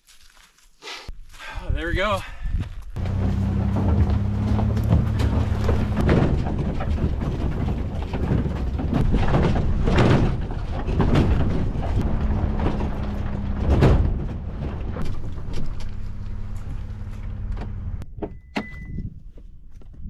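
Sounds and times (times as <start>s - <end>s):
tyres crunching over gravel: 2.7s - 18.0s
car engine hum: 3.0s - 18.1s
car jolting thumps: 3.0s - 18.4s.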